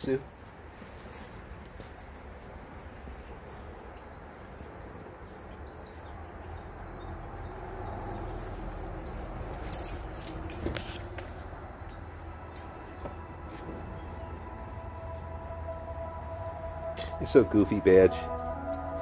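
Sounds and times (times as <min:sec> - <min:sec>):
paws scuffling on patio: 0:00.1 - 0:14.3.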